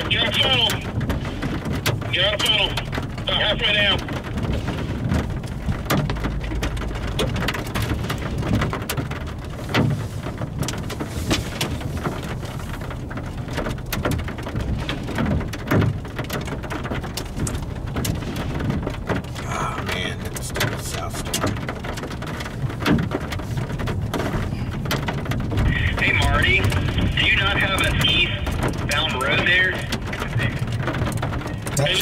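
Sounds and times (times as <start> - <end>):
rain pattering: 0.0 - 32.0
raindrops ticking close by: 0.0 - 32.0
low rumble: 11.8 - 32.0.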